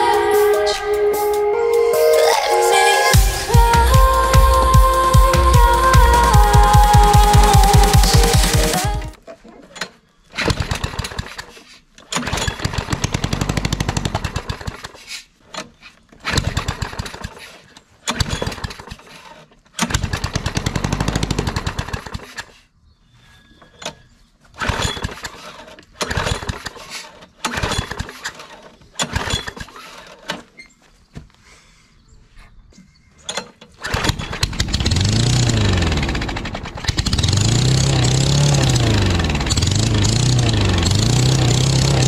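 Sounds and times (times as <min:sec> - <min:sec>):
lawn mower engine sputtering: 0:03.1 - 0:09.2, 0:10.4 - 0:11.4, 0:12.1 - 0:15.0, 0:19.8 - 0:22.2, 0:33.3 - 0:42.0.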